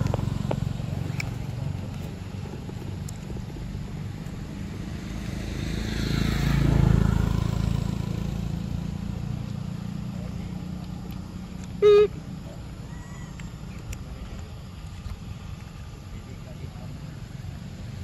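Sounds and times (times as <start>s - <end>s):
motor vehicle passing: 0.0s - 18.0s
steady low hum: 6.6s - 18.0s.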